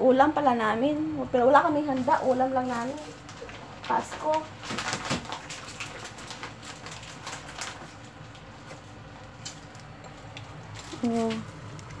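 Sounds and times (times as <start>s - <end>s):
fish frying in oil: 5.4s - 12.0s.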